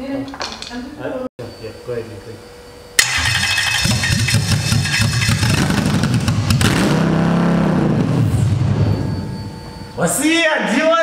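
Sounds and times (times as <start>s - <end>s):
engine running: 3.0s - 10.0s.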